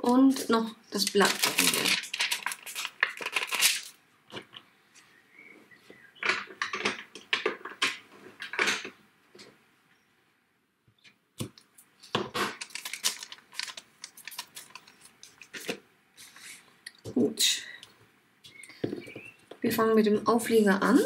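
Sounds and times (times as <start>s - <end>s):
plastic sheet crinkling clicks: 1.0s - 4.6s, 11.4s - 15.8s.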